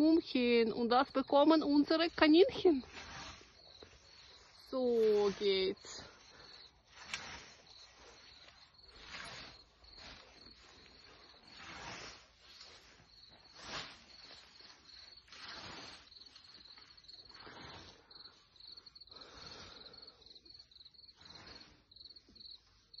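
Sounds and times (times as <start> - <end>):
crickets chirping: 0.1 - 23.0
scythe swishing through grass: 2.8 - 5.8, 6.8 - 17.9.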